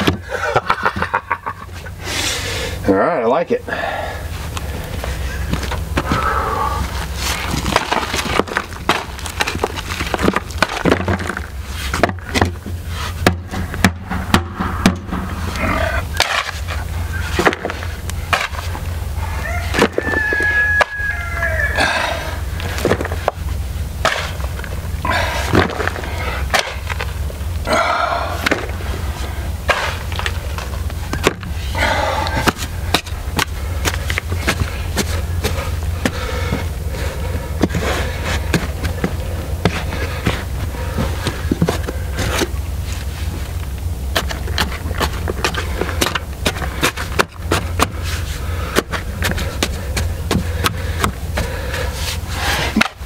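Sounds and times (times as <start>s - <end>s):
steady low rumble: 0.0s - 53.0s
shovel scraping gravelly dirt: 6.9s - 13.9s, 14.6s - 21.1s, 22.6s - 27.4s, 28.4s - 53.0s
stones knocking: 7.3s - 15.4s, 17.3s - 18.7s, 22.6s - 23.4s, 24.0s - 27.1s.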